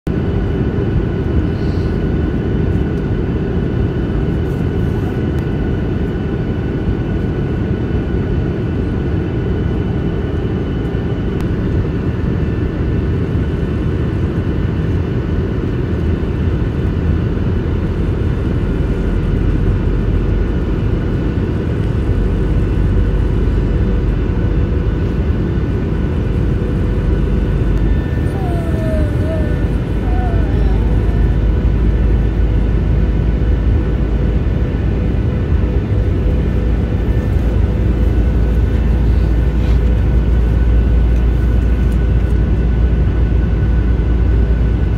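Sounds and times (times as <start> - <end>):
engine and airflow rush: 0.1 - 44.9
faint steady whines: 0.1 - 44.9.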